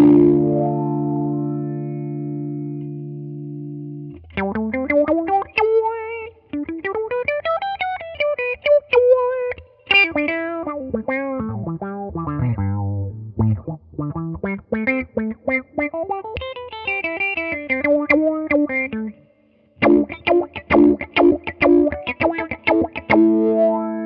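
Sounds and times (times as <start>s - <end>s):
electric guitar with auto-wah: 0.0s - 24.0s.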